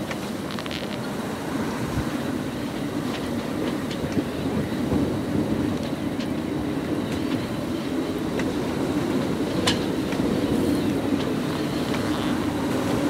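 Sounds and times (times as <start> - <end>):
strong wind buffeting microphone: 0.0 - 13.0.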